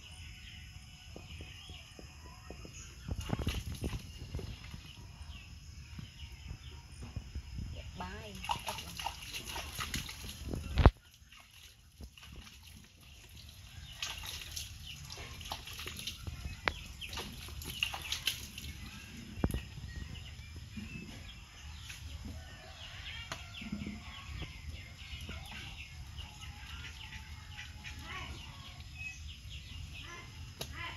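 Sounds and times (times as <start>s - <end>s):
water splashing and dripping: 3.1s - 5.0s, 8.0s - 19.7s.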